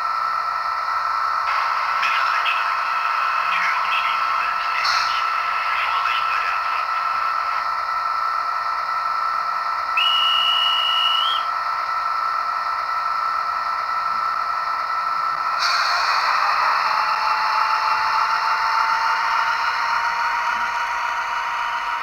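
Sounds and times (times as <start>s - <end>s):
tinny drone from model train: 0.0s - 22.0s
shrill train whistle: 10.0s - 11.5s.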